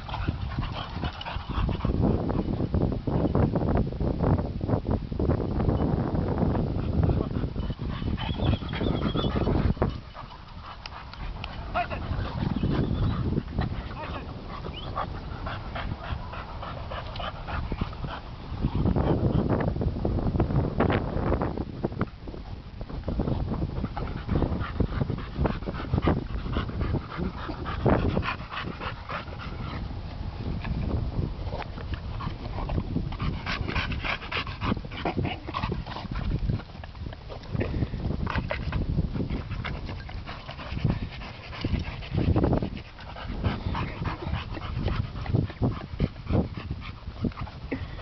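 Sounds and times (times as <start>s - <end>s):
dogs panting: 0.0s - 2.7s, 6.4s - 19.7s, 22.5s - 48.0s
dogs play-fighting vocalizing: 0.0s - 2.7s, 6.5s - 19.7s, 22.5s - 48.0s.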